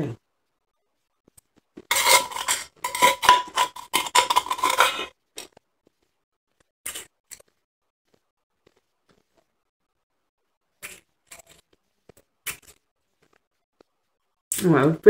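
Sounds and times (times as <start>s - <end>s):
metal spoon clinking in tumbler: 1.9s - 5.1s.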